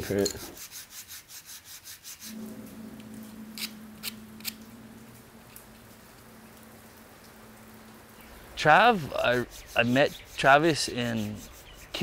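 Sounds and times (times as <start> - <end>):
hand sanding wood: 0.0 - 2.4, 8.9 - 12.0
low steady hum: 2.2 - 9.3.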